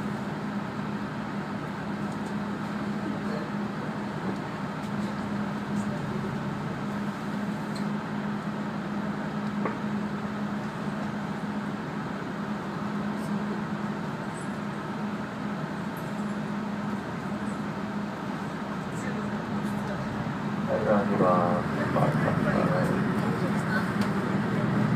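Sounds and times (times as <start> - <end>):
bus engine humming: 0.0 - 24.9
bus running rumble: 0.0 - 24.9.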